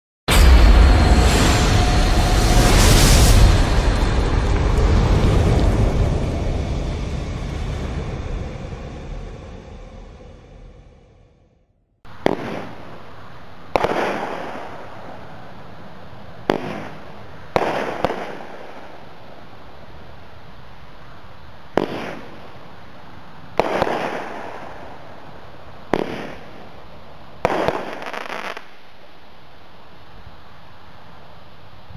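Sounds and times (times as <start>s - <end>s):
firework bangs: 0.3s - 7.6s, 12.1s - 15.6s, 16.4s - 19.2s, 21.7s - 22.8s, 23.5s - 28.8s
firework crackle: 0.3s - 9.2s, 12.1s - 20.2s, 21.7s - 29.2s
steady hiss: 12.1s - 31.9s.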